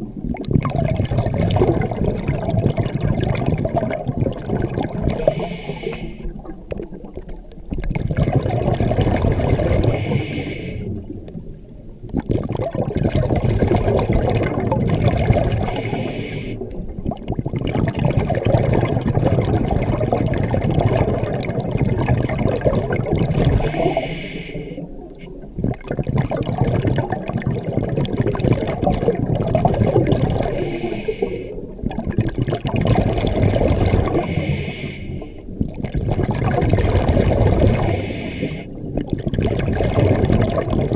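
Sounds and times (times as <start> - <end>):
exhaled air bubbling: 0.0 - 40.9
regulator inhale hiss: 5.2 - 6.4, 9.9 - 11.0, 15.7 - 16.7, 23.6 - 25.4, 30.5 - 31.7, 34.1 - 35.4, 37.8 - 38.8.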